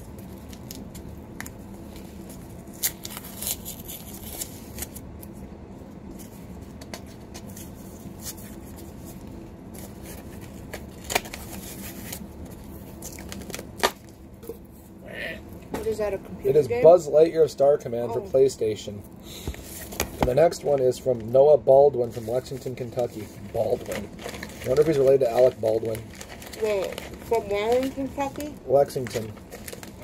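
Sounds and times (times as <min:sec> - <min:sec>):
cardboard tearing: 0:02.7 - 0:05.0
cardboard mailer rustling and crinkling: 0:22.0 - 0:30.0.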